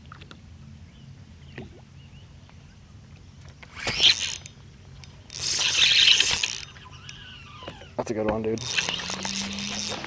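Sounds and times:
electric trolling motor humming: 3.6 - 10.0.

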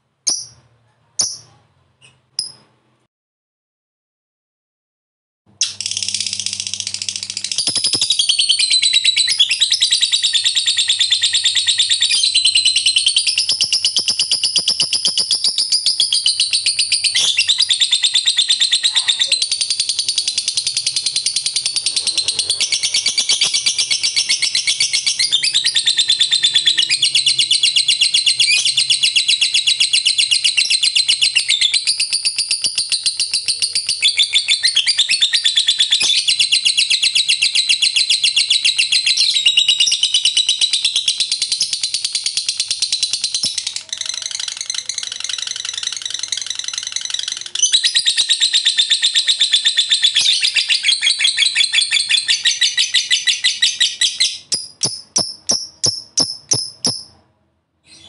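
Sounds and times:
bird shrill chattering trill: 5.6 - 29.0.

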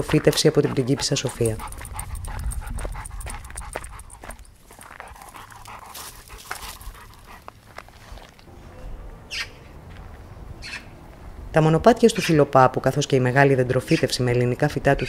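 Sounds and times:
dog panting: 0.0 - 8.3.

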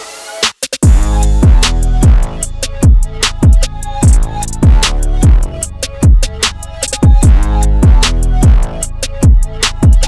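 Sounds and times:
electronic music with heavy beat: 0.0 - 10.0.

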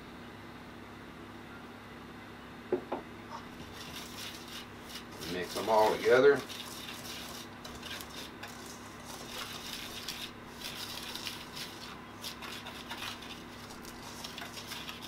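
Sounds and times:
utensil scraping metal bowl: 3.3 - 15.0.

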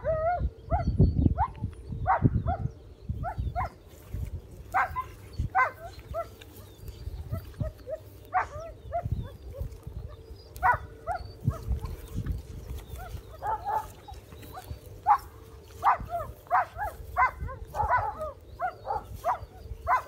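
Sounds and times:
dog whining and yipping: 0.0 - 2.6, 4.7 - 20.0.

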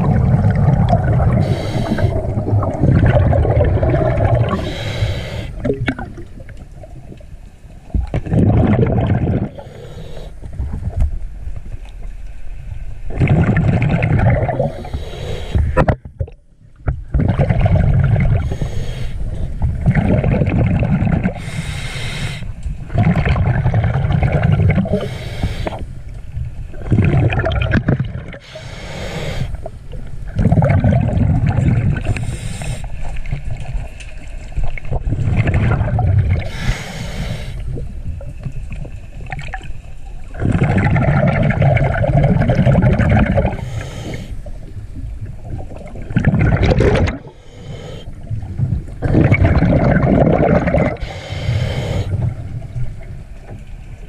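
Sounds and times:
exhaled bubbles gurgling: 0.0 - 11.1, 13.0 - 54.0
breathing through a regulator: 1.2 - 2.4, 4.4 - 5.7, 9.4 - 10.5, 14.5 - 15.8, 18.3 - 19.6, 21.2 - 22.6, 24.8 - 25.9, 28.3 - 29.7, 32.0 - 33.2, 36.4 - 37.8, 42.9 - 44.5, 47.2 - 48.3, 50.7 - 52.4.

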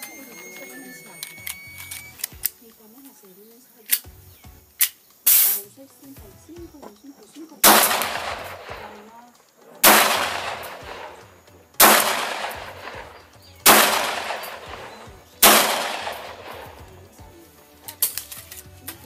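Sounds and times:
pistol shots: 7.6 - 9.1, 9.7 - 16.9.

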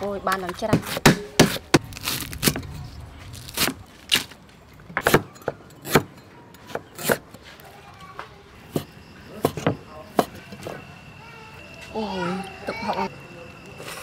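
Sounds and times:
cleaver chopping on wooden board: 0.6 - 1.9.

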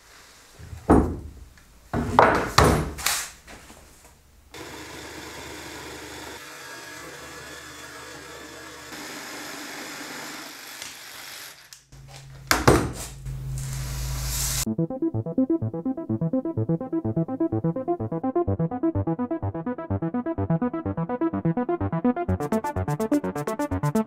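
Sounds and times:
jigsaw cutting wood: 4.5 - 11.9.

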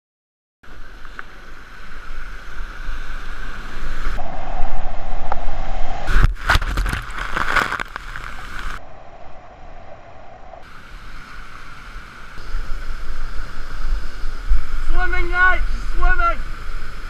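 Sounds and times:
kayak splashing into foam: 6.1 - 8.8
whitewater rushing: 10.6 - 17.0.

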